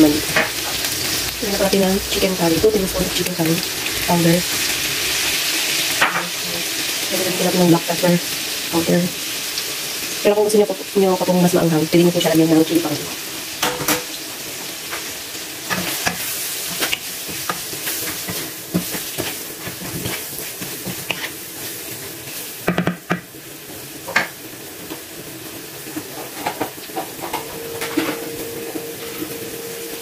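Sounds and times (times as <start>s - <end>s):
chicken sizzling in a wok: 0.0s - 30.0s
stirring clicks and scrapes on pan: 15.7s - 23.0s.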